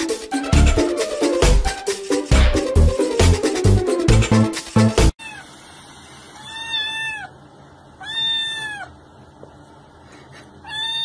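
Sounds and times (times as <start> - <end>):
electronic dance music: 0.0 - 5.1
kitten meowing: 6.4 - 7.3, 8.0 - 8.9, 10.6 - 11.0.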